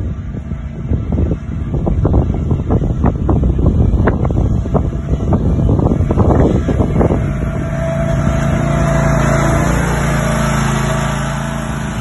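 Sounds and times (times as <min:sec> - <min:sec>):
ride-on lawn mower engine: 0:00.0 - 0:12.0
thin whine: 0:00.0 - 0:12.0.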